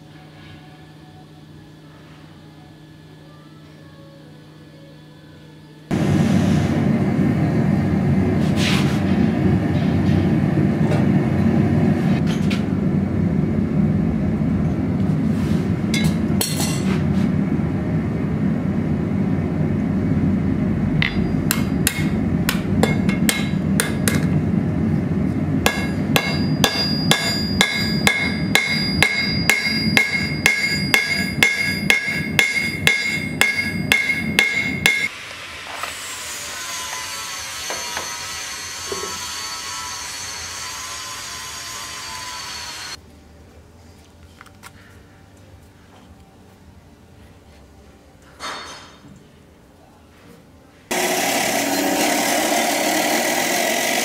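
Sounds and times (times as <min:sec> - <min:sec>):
gas burner rushing: 0:05.9 - 0:31.9
hammer striking steel on anvil: 0:15.9 - 0:16.9, 0:21.0 - 0:24.4, 0:25.6 - 0:35.1.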